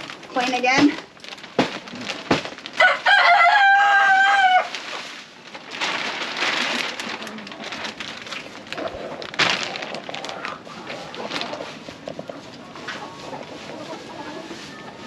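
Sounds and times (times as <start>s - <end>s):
plastic bag rustling: 0.0s - 15.0s
wood shavings pouring: 0.0s - 15.0s
rooster crowing: 2.8s - 4.8s.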